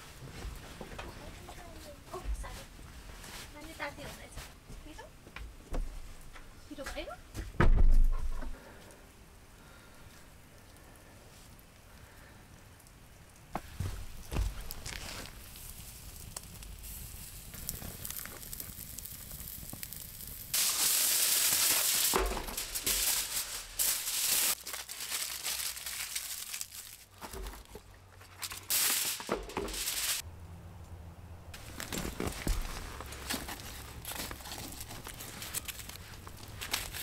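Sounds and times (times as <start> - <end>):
coals crackling: 8.1 - 37.0
meat sizzling over coals: 9.6 - 27.1, 28.4 - 30.2, 33.5 - 37.0
aluminium foil crinkling: 14.0 - 30.2, 31.6 - 37.0.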